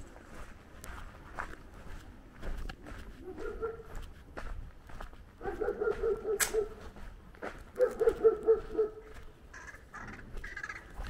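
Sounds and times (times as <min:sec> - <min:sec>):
footsteps ticking: 0:00.0 - 0:11.0
dog barking: 0:03.2 - 0:04.0, 0:05.4 - 0:06.8, 0:07.8 - 0:09.2.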